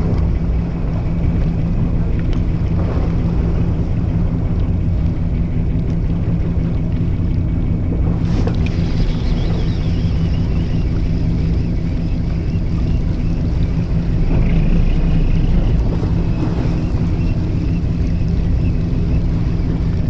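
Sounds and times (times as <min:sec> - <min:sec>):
boat engine humming: 0:00.0 - 0:20.0
water washing along hull: 0:00.0 - 0:20.0
wind on microphone: 0:00.0 - 0:20.0.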